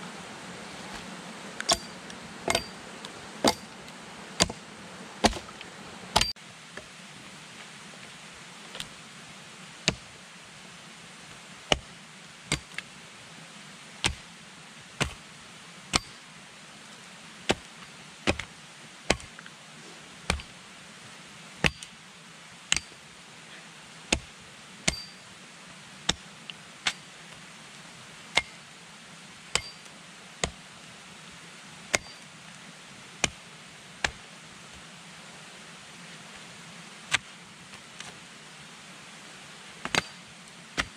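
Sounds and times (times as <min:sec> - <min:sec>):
axe striking wooden pole: 0:01.7 - 0:02.7, 0:03.4 - 0:03.7, 0:04.4 - 0:04.6, 0:05.2 - 0:05.5, 0:16.0 - 0:16.2, 0:19.1 - 0:19.3, 0:20.3 - 0:20.5, 0:24.9 - 0:25.2, 0:29.6 - 0:29.8, 0:31.9 - 0:32.2, 0:39.9 - 0:40.2.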